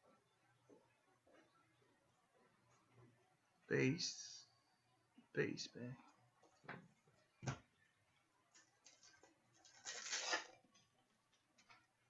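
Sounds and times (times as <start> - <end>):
wrapper crinkling as torn open: 8.8 - 10.6.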